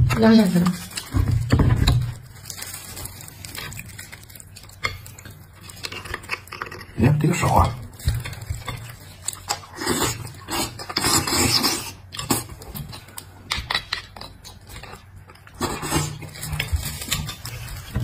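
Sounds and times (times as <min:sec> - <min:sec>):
slurping and sucking marrow: 0:09.4 - 0:12.5.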